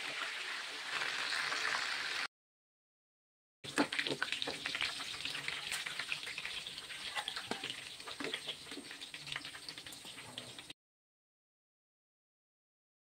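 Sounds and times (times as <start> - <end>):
fish sizzling in hot oil: 0.0 - 2.3, 3.7 - 10.8
metal spatula scraping pan: 3.7 - 10.7.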